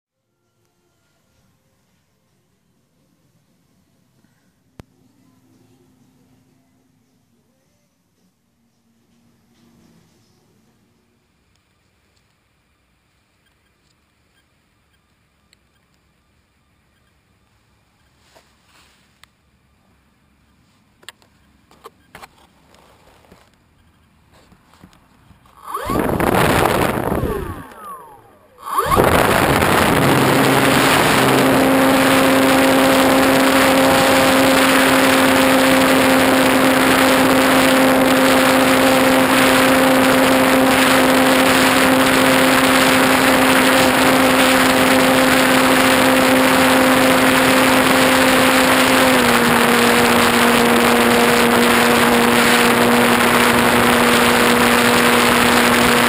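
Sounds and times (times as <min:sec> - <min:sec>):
electric motor and propeller hum: 0:21.7 - 0:56.0
wind rush: 0:25.8 - 0:32.1.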